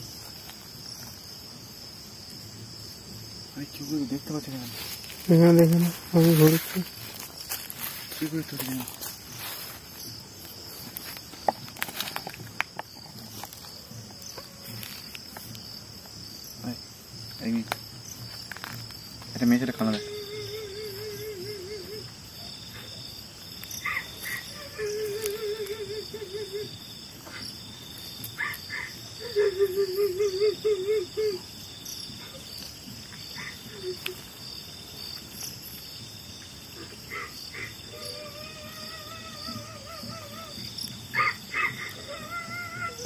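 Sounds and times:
insects chirping: 0.0 - 43.0
distant wavering wailing cry: 19.8 - 22.3, 23.8 - 26.9, 37.1 - 43.0.

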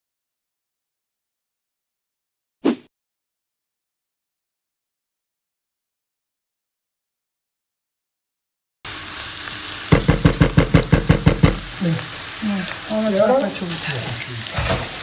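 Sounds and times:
vegetables sizzling in pan: 8.9 - 15.0
loud knocks: 9.9 - 11.7.

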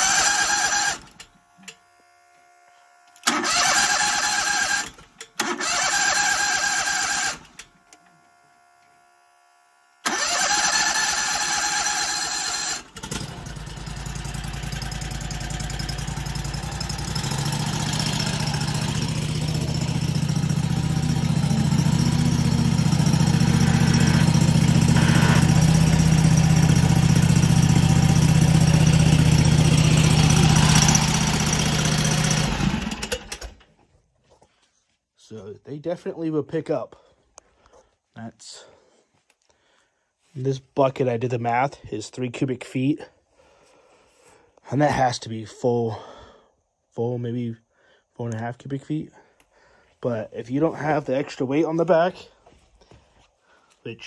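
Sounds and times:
electric starter cranking engine: 0.0 - 8.1, 10.0 - 33.8
engine running: 0.0 - 33.6.

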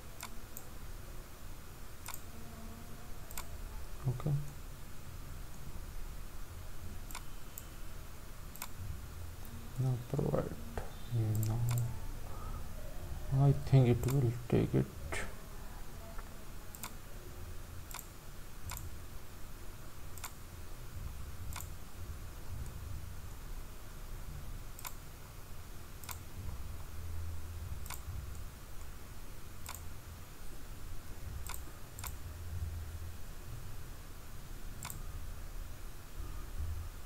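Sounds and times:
faint low hum: 0.0 - 37.0
computer mouse clicking: 2.0 - 2.3, 8.5 - 8.8, 10.8 - 11.9, 14.0 - 14.2, 16.7 - 17.0, 17.9 - 18.9, 20.1 - 20.4, 21.5 - 21.8, 24.7 - 25.0, 26.0 - 26.4, 27.8 - 28.9, 29.6 - 29.9, 31.4 - 32.2, 34.8 - 35.0.

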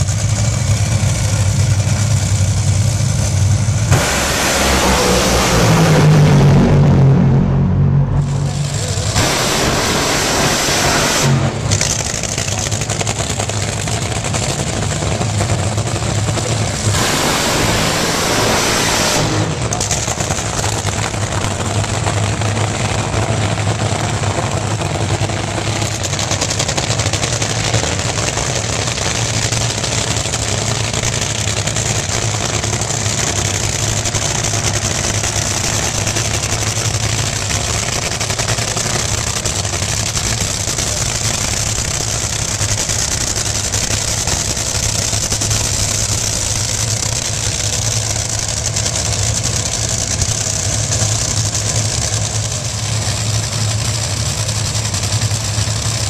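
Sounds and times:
drag racing engines rumbling: 0.0 - 56.0.

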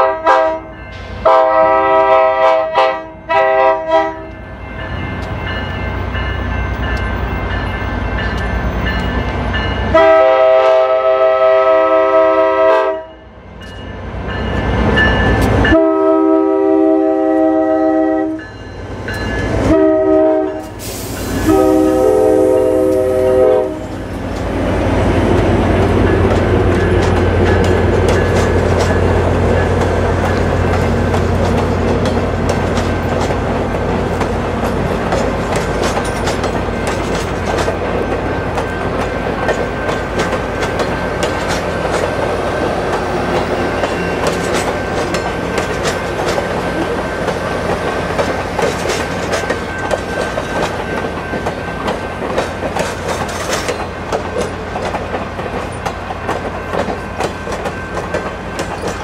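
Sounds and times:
locomotive air horn blasts: 0.0 - 4.3, 9.9 - 13.2, 15.7 - 18.4, 19.6 - 24.0
train cars rumbling past: 0.0 - 59.0
train wheels clickety-clack: 4.0 - 10.9, 18.2 - 59.0
locomotive engine rumble: 18.8 - 59.0.

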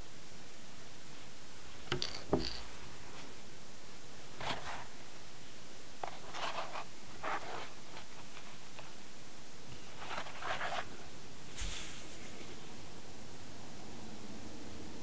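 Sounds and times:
steady hiss: 0.0 - 15.0
soft rustling or scraping: 4.4 - 5.0, 6.0 - 9.0, 9.7 - 12.8.

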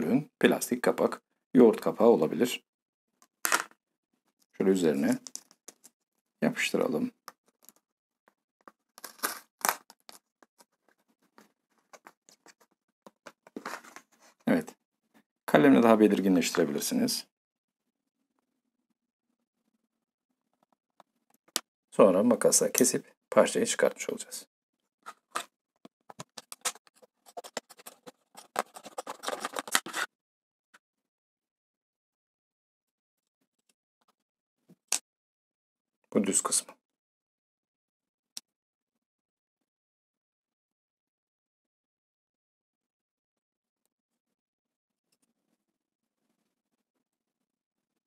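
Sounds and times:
crinkly tape sounds: 8.6 - 14.4, 25.0 - 30.1
scissors cutting plastic: 26.1 - 30.1.

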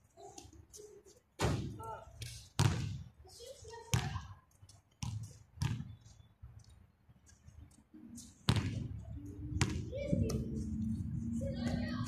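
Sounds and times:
basketball bouncing on concrete: 2.6 - 3.1, 3.9 - 4.3, 5.0 - 6.0, 8.4 - 8.9, 9.6 - 9.9.

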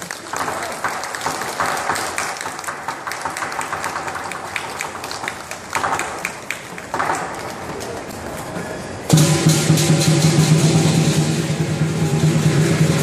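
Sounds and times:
audience clapping: 0.0 - 8.6
crowd chatter: 0.0 - 13.0.

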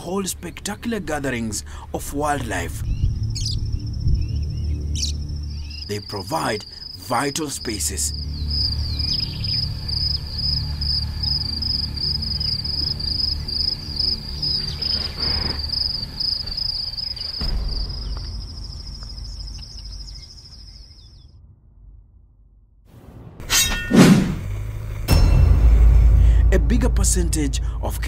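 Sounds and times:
low steady drone: 0.0 - 21.0, 24.1 - 28.0
insects trilling: 0.0 - 21.3.

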